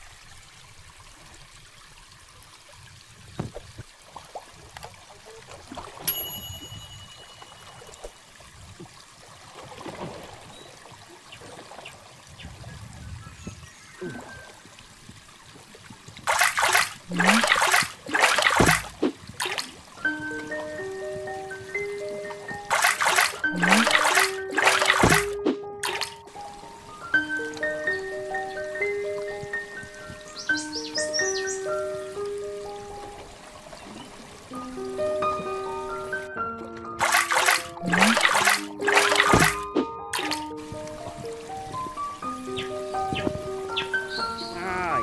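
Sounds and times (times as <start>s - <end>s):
river water trickling and lapping: 0.0s - 45.0s
fish splashing in basket: 16.2s - 19.8s, 22.7s - 26.2s, 37.0s - 40.5s.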